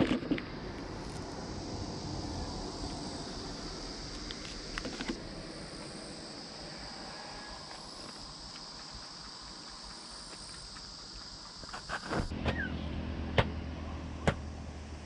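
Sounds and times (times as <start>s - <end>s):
insects buzzing: 0.0s - 13.8s
low rumble: 0.4s - 6.6s.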